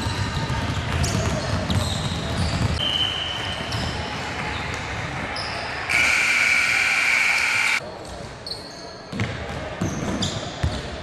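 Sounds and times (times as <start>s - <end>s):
basketballs bouncing on wooden floor: 0.0s - 2.8s
loud high-pitched tone: 5.9s - 7.8s.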